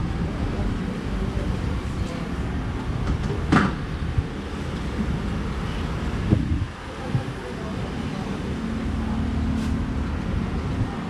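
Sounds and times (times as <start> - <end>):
street traffic rumble: 0.0 - 11.0
short hiss: 9.6 - 9.8.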